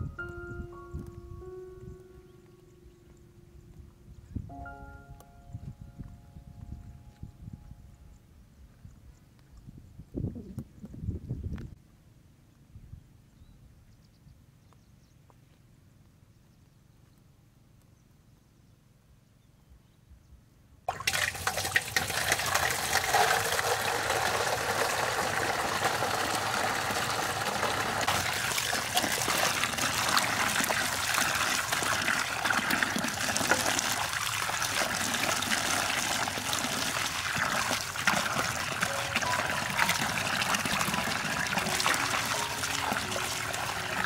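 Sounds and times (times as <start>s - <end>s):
tap water pouring into a basin: 20.9s - 44.0s.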